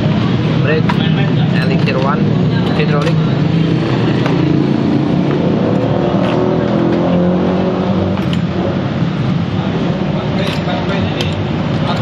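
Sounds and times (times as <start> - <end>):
vehicle engine running: 0.0 - 12.0.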